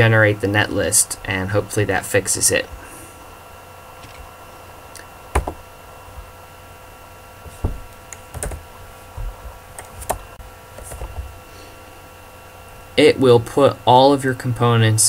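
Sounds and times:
faint electrical hum: 0.0 - 15.0.

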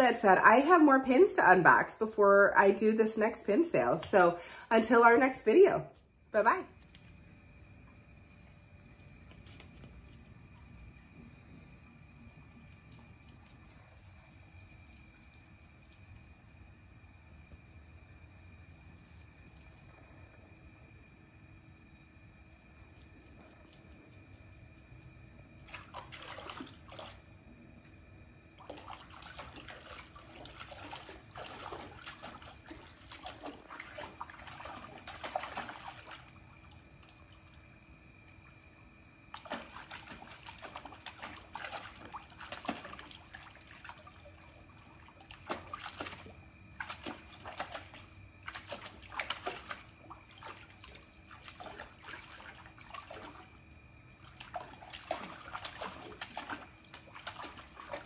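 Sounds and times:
dog splashing in water: 25.6 - 27.3, 28.6 - 37.6, 39.3 - 58.0.

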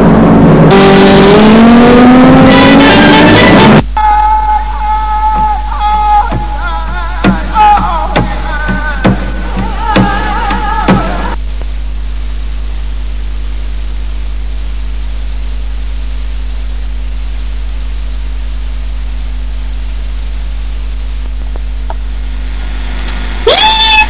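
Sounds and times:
tape hiss: 0.0 - 24.0
loud cry: 2.8 - 11.4, 23.4 - 24.0
low mains hum: 3.8 - 24.0.

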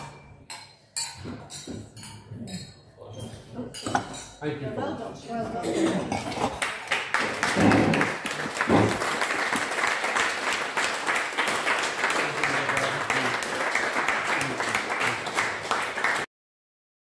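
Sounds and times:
audience applauding: 6.5 - 16.3
voices under applause: 6.6 - 16.3.

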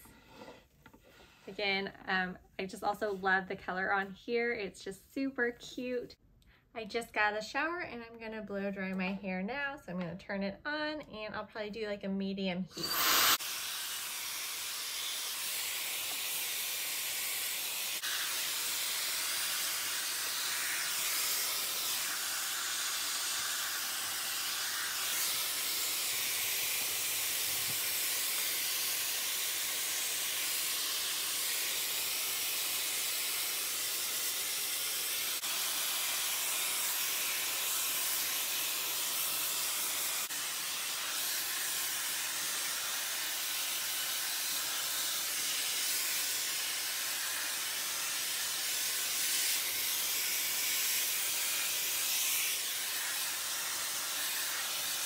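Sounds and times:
hair dryer blowing: 12.7 - 55.0.

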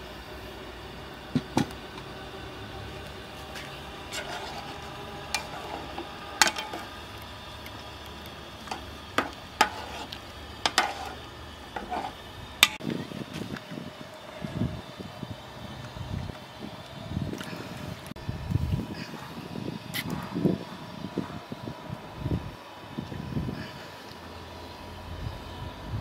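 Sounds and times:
steady low rumble: 0.2 - 23.9
metal ladle clinking on pot: 4.1 - 6.9, 10.7 - 11.2.

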